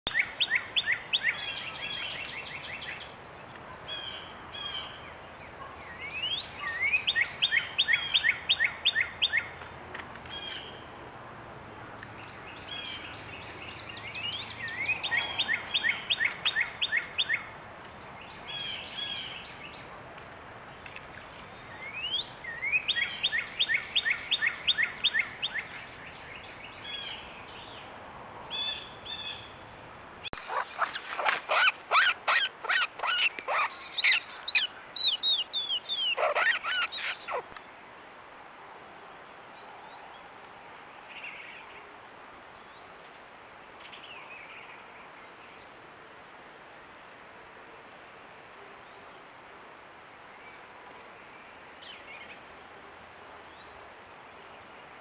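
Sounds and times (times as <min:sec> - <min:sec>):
faint bird chirps: 0:30.4 - 0:37.5.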